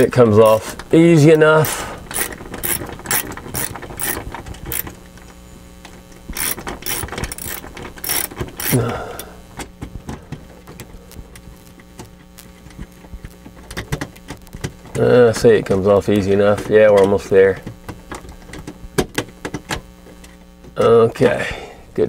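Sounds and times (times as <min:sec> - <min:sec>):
ratcheting nut driver clicking: 0:01.6 - 0:04.9, 0:06.4 - 0:08.8.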